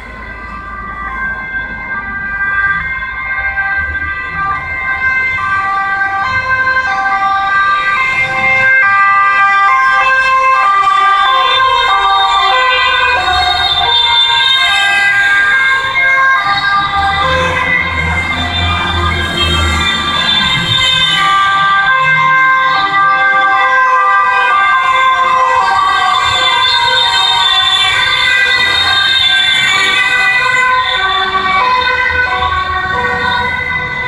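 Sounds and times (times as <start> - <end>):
police sirens: 0.0 - 34.0.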